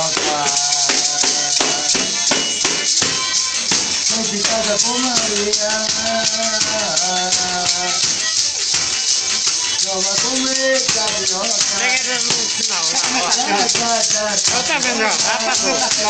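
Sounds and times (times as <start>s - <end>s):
man singing: 0.0s - 2.6s, 4.0s - 8.4s, 9.8s - 16.0s
maraca shaking: 0.0s - 16.0s.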